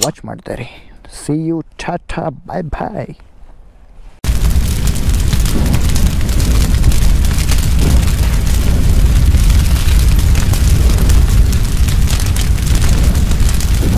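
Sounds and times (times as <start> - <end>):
fine crackling: 4.0 - 13.9
deep rumble: 4.2 - 13.9.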